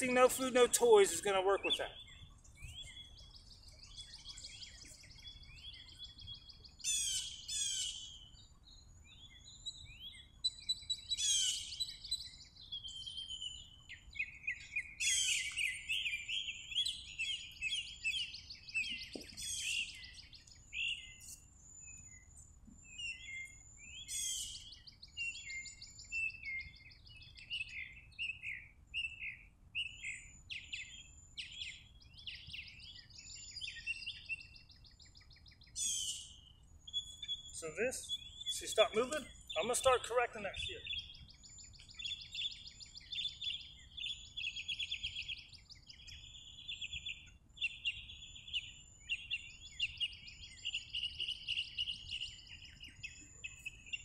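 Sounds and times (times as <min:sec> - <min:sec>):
bird trilled phrase: 0:00.0 - 0:02.0, 0:37.6 - 0:41.0
songbirds chirping: 0:00.0 - 0:54.0.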